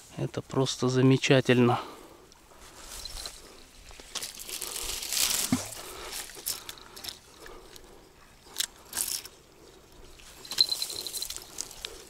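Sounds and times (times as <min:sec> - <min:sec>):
dry reeds and grass rustling: 0:02.3 - 0:12.0.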